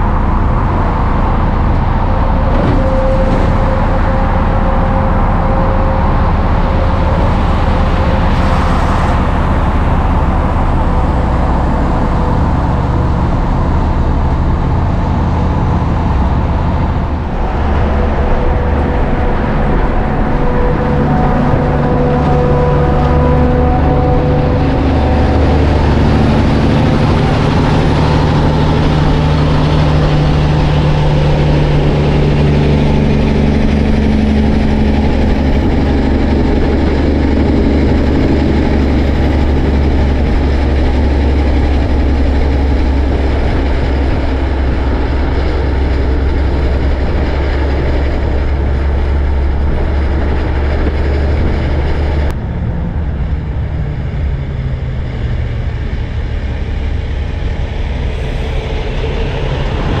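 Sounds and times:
diesel truck engine running: 0.0s - 60.0s
road noise: 0.0s - 60.0s.

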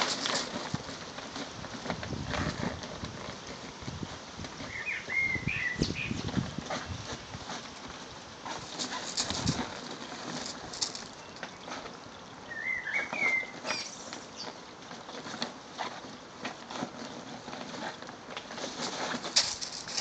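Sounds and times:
fabric bag rustling: 0.0s - 3.6s, 15.8s - 20.0s
paws crunching on gravel: 0.0s - 12.0s, 13.1s - 20.0s.

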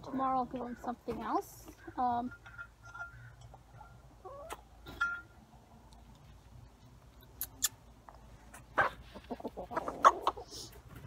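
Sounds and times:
chicken chirp: 3.9s - 4.7s
rustle: 8.0s - 11.0s.

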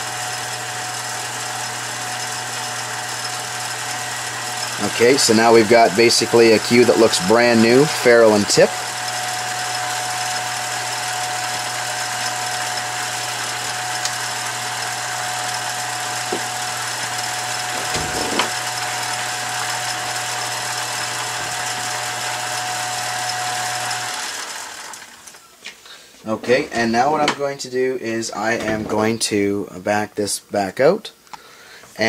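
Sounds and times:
lathe motor humming and whining: 0.0s - 25.5s.

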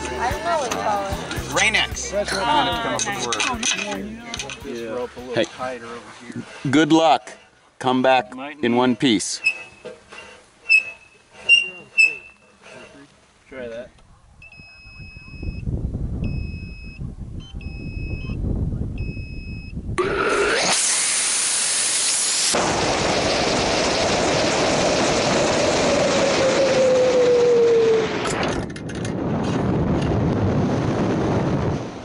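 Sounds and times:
two-tone electronic beeps: 14.4s - 15.6s, 16.2s - 18.4s, 19.0s - 19.8s
rocket motor roar: 20.0s - 32.0s.

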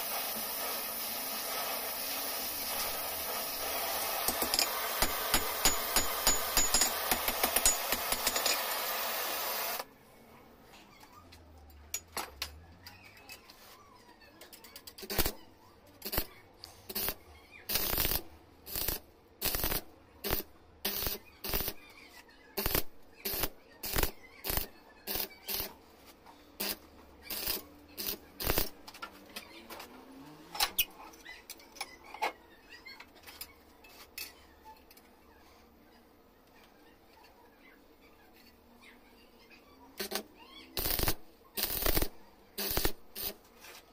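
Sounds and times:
welding arc crackling: 0.0s - 9.8s, 15.0s - 15.4s, 16.0s - 16.3s, 16.9s - 21.8s, 22.6s - 25.8s, 26.6s - 28.9s, 40.8s - 43.4s.

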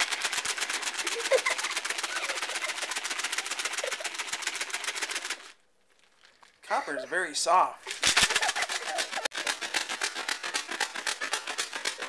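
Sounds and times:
screws rattling in container: 0.0s - 5.6s, 7.9s - 12.0s.

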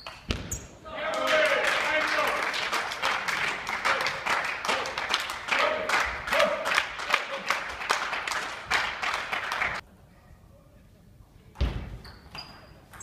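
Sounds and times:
hand clapping: 1.2s - 9.8s.

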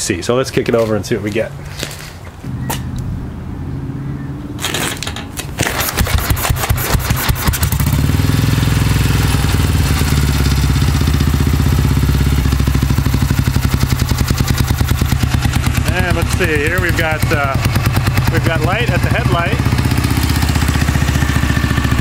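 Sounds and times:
engine running steadily: 2.4s - 22.0s
motorcycle engine kickstarted: 4.6s - 22.0s.

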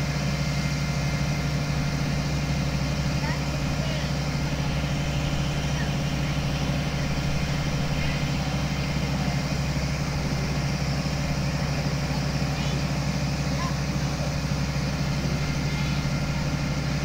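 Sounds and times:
diesel engine running: 0.0s - 17.0s.

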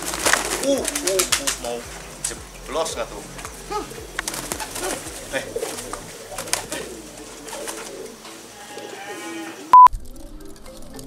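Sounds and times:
pigeon wings clapping and flapping: 0.0s - 8.2s
pigeons cooing: 0.0s - 11.0s.

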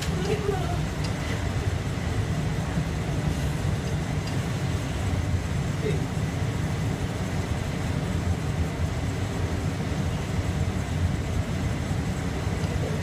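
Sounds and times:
train low rumble: 0.0s - 13.0s.

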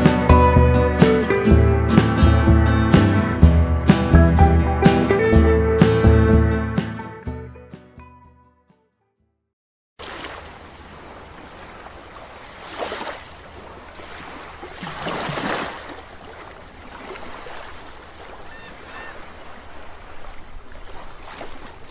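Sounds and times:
waves washing: 10.0s - 21.9s.

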